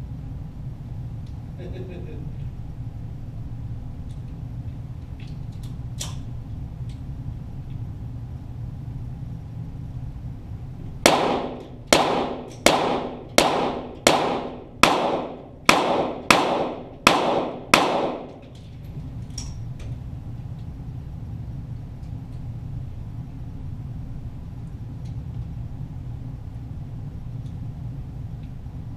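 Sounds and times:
pistol shots with echo: 0:11.0 - 0:18.4.

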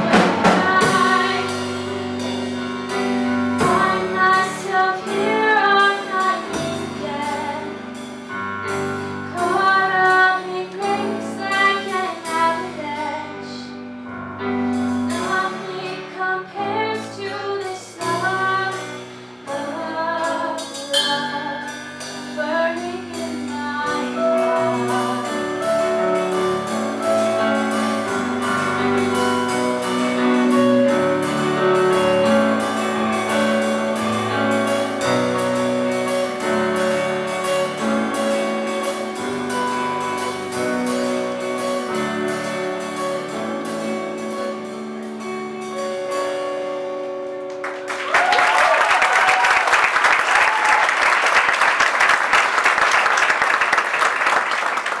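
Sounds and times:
sustained keyboard chords: 0:00.0 - 0:47.9
audience applause and cheering: 0:47.5 - 0:55.0.

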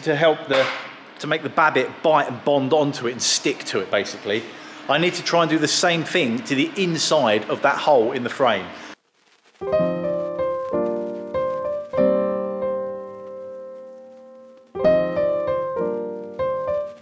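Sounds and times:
piano chords: 0:09.6 - 0:17.0.

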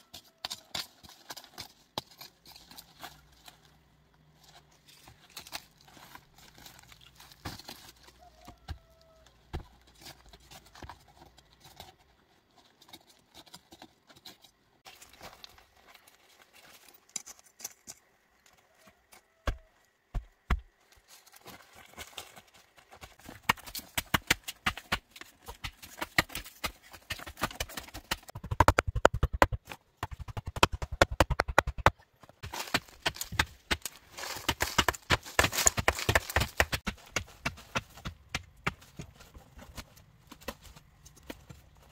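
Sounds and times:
chopping strokes into ground: 0:23.1 - 0:39.1.

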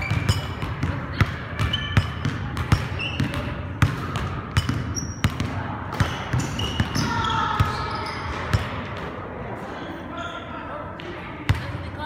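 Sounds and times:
basketball bouncing on wooden floor: 0:00.0 - 0:07.8.

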